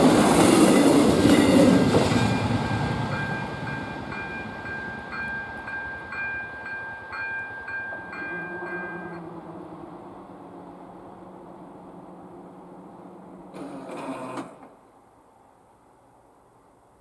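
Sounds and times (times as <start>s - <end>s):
train rumble: 0.0s - 13.7s
crossing warning bell ringing: 0.3s - 9.3s.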